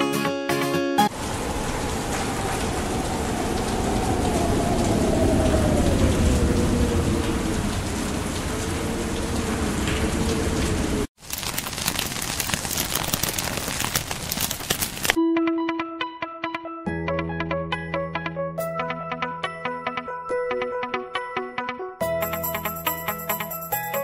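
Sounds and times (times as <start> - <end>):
guitar music: 0.0 - 1.1, 15.2 - 23.4
rushing noise with deep rumble: 1.1 - 11.1.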